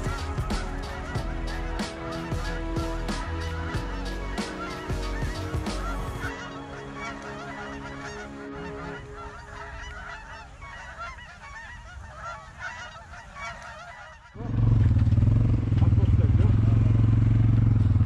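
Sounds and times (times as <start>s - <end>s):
geese honking: 0.0s - 14.8s
loud steady low rumble: 14.4s - 18.0s.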